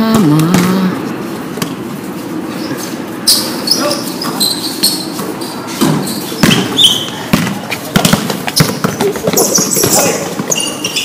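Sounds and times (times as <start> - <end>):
basketball bouncing on concrete: 0.4 - 0.8, 5.8 - 11.0
sneaker squeaks: 2.5 - 11.0.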